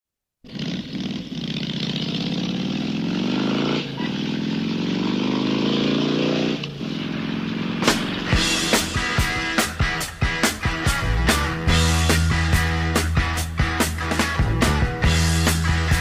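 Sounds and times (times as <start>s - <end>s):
race car engine accelerating: 0.5s - 11.9s
sharp drum hits: 7.8s - 12.7s.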